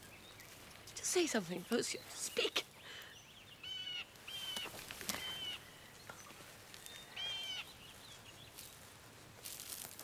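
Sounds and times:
faint chirps and clicks: 0:00.0 - 0:07.8.

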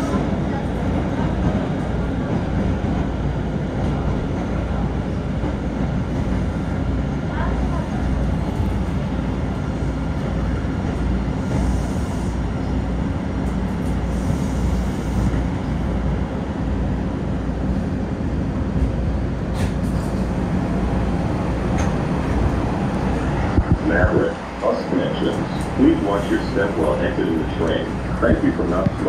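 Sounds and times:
subway wheels rumbling on rail: 0:00.0 - 0:29.0.

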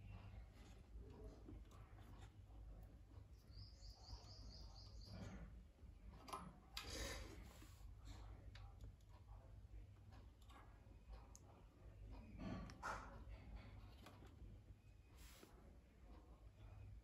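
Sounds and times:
bird chirping: 0:03.3 - 0:05.5.

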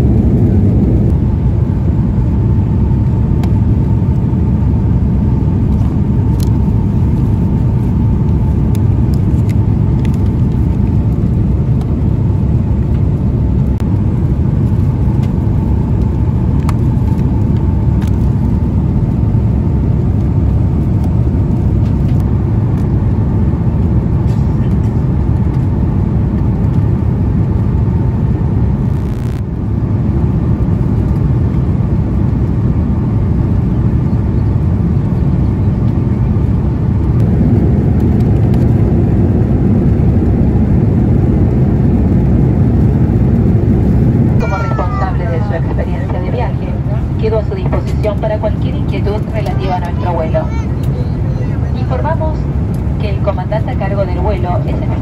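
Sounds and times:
airliner cabin engine rush: 0:00.0 - 0:55.0.

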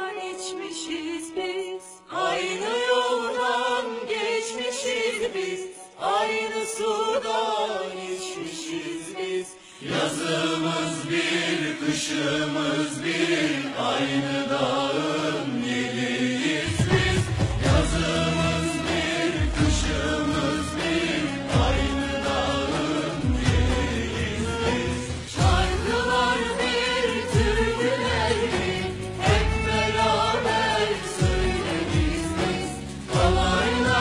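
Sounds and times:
voices singing: 0:00.0 - 0:34.0
musical accompaniment with bass line: 0:16.7 - 0:34.0.

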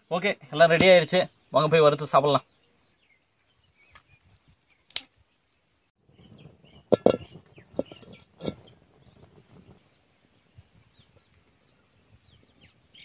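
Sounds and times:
twig fire snapping: 0:03.9 - 0:05.2
metal pan knocking and clinking: 0:06.9 - 0:08.7.

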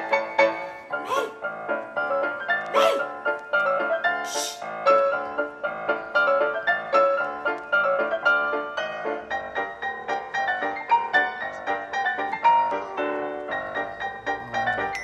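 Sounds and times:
piano music: 0:00.0 - 0:15.0
hiss burst: 0:04.3 - 0:04.6.

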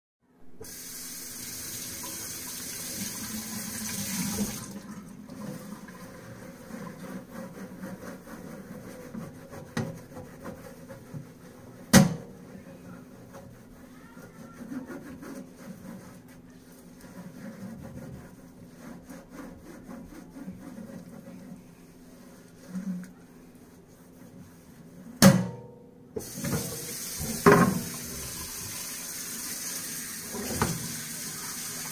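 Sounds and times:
faucet running into metal sink: 0:00.6 - 0:06.1, 0:26.2 - 0:31.9
cloth scrubbing metal baking sheet: 0:05.3 - 0:25.2, 0:26.2 - 0:31.9.

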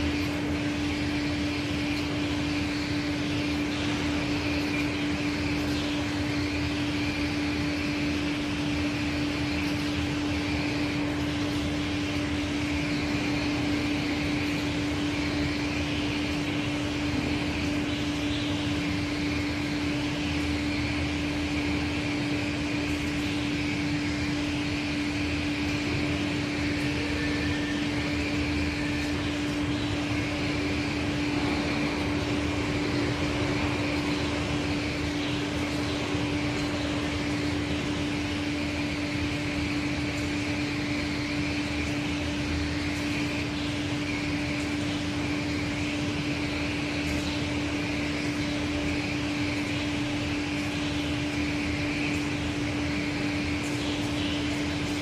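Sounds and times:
grinding machine hum: 0:00.0 - 0:55.0.

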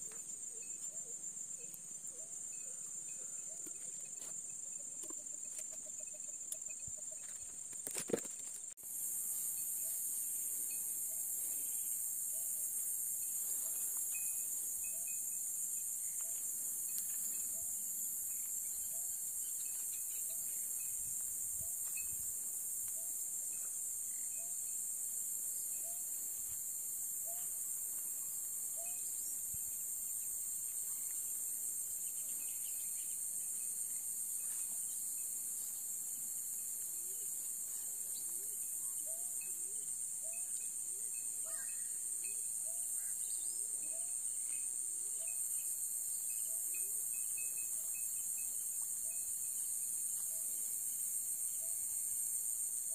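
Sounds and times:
crickets chirping chorus: 0:00.0 - 0:52.9.

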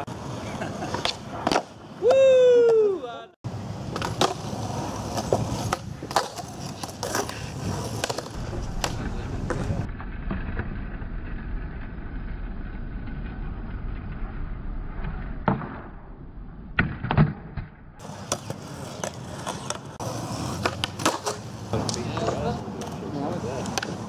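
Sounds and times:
skateboard wheels rolling on concrete: 0:00.0 - 0:24.0
skateboard tail snap: 0:08.0 - 0:09.7
skateboard clacks: 0:16.8 - 0:24.0.

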